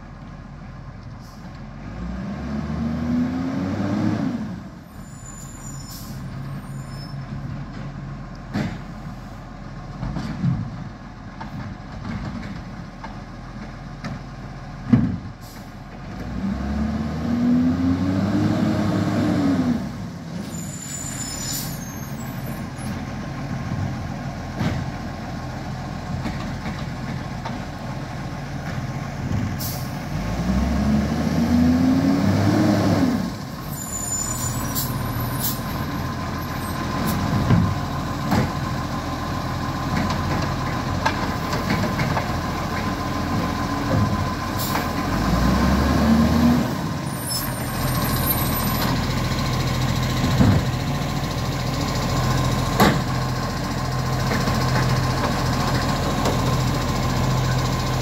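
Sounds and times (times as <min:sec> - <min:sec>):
garbage truck diesel engine: 0:00.0 - 0:58.0
air brakes hissing: 0:05.0 - 0:07.2, 0:15.4 - 0:15.8, 0:20.4 - 0:22.9, 0:29.6 - 0:30.0, 0:33.6 - 0:35.9.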